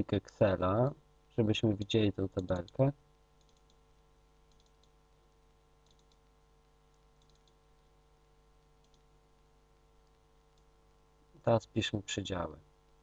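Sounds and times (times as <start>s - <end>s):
faint hum: 0.0s - 13.0s
computer mouse clicks: 3.4s - 3.8s, 4.5s - 5.0s, 5.8s - 6.3s, 6.9s - 7.9s, 8.6s - 9.1s, 10.0s - 10.7s.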